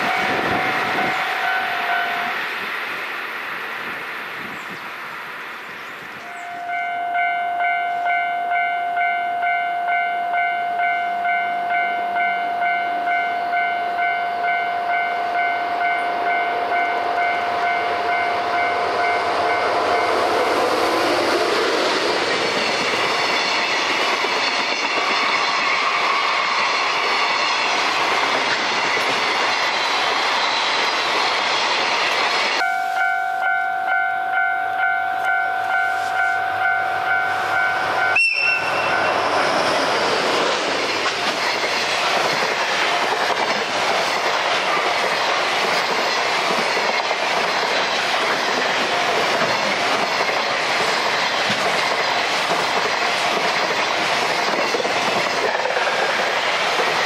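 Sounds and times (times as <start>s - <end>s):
level crossing warning bell: 0.0s - 2.4s, 6.3s - 20.3s, 32.6s - 39.4s
train rushing past: 0.0s - 57.0s.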